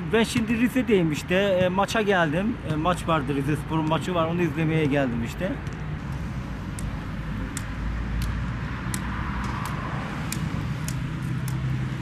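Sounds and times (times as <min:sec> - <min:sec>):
cane tip tapping on concrete: 0:07.5 - 0:11.7.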